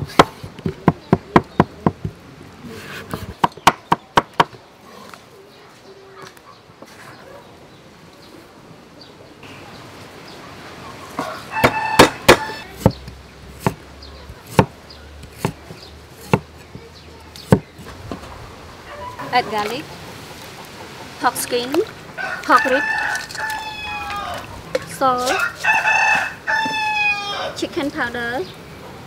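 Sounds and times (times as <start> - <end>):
cleaver chopping on wooden block: 3.1 - 4.6, 11.6 - 13.8, 14.4 - 16.8, 17.4 - 17.8
chicken calling: 10.6 - 12.7, 18.3 - 27.6.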